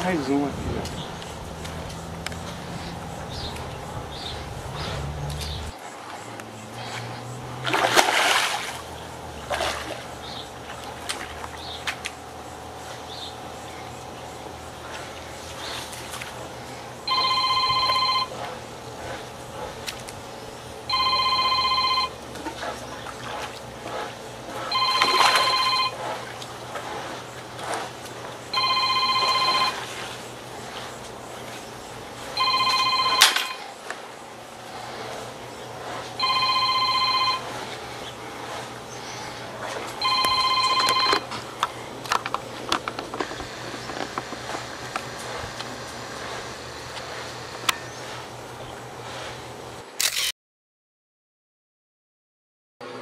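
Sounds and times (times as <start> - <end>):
electronic telephone ringtone: 17.1 - 18.3, 20.9 - 22.2, 24.7 - 26.0, 28.6 - 29.9, 32.4 - 33.6, 36.2 - 37.5, 40.0 - 41.2.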